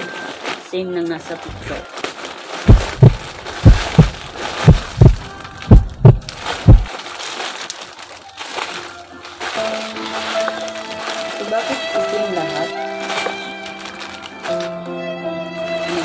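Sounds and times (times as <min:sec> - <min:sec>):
plastic bag rustling: 0:00.0 - 0:14.8, 0:15.6 - 0:16.0
deep thumps in pairs: 0:02.7 - 0:06.9.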